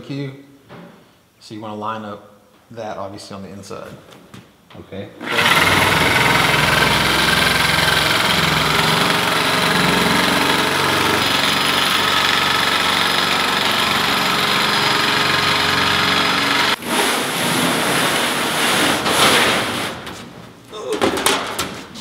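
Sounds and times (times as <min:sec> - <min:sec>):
electric shear cutting metal sheet: 0:05.2 - 0:18.6
metal sheet rustling clatter: 0:16.8 - 0:22.0.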